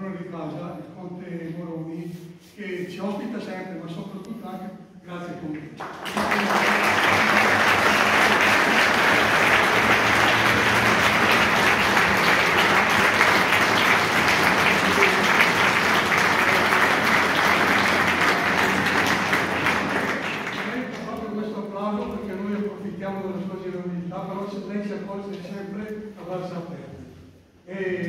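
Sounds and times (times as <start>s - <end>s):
audience applauding: 5.8s - 21.2s.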